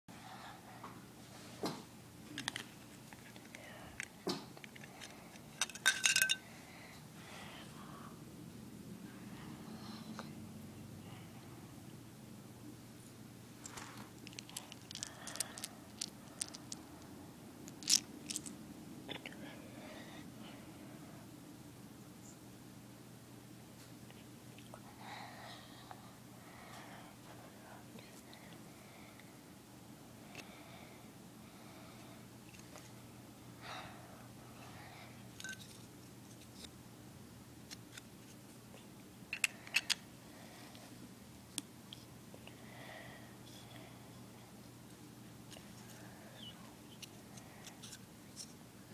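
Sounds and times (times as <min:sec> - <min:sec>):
plastic bricks clicking and clattering: 0:13.7 - 0:16.8, 0:17.7 - 0:18.5.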